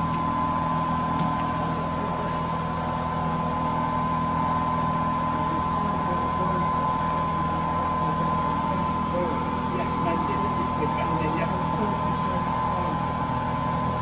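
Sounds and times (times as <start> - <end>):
diesel locomotive engine idling: 0.0 - 14.0.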